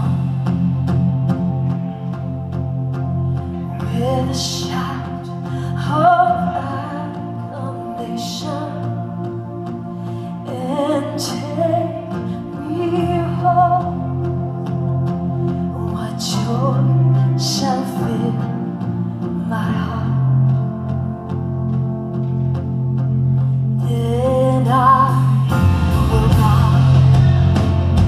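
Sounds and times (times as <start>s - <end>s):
woman singing into a microphone: 3.7s - 9.4s, 10.0s - 14.6s, 15.6s - 20.6s, 23.8s - 27.2s.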